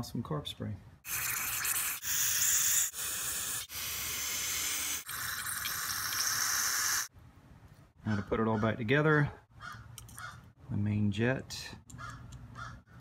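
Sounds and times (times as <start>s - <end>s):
aerosol spray hissing: 1.1s - 7.1s.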